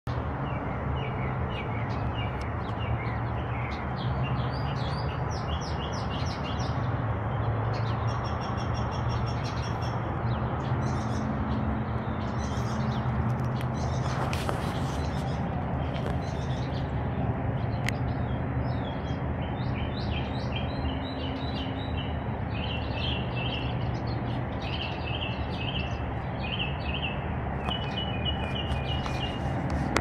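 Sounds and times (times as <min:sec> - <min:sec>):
songbirds chirping and trilling: 0:00.1 - 0:30.0
brief rustle: 0:13.4 - 0:16.3.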